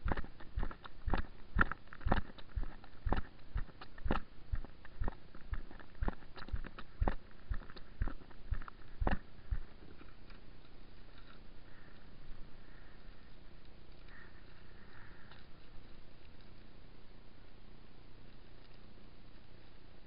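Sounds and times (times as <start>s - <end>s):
footsteps as dull knocks: 0.0s - 9.7s.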